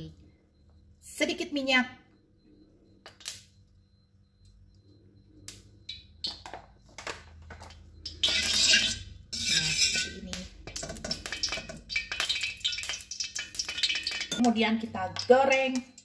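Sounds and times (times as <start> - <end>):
metal spatula scraping wok: 8.2 - 10.2.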